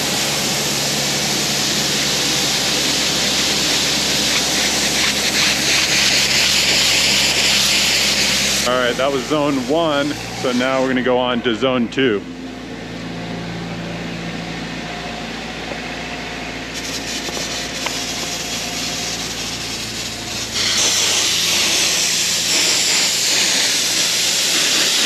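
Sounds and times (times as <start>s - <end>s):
air compressor engine hum: 0.0s - 25.0s
sprinkler heads hissing: 0.8s - 10.8s, 16.7s - 25.0s.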